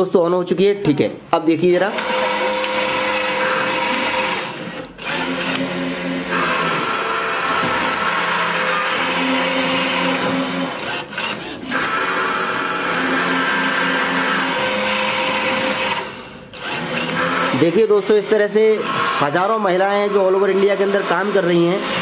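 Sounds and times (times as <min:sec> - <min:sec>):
small motor whirring: 0:02.0 - 0:17.7.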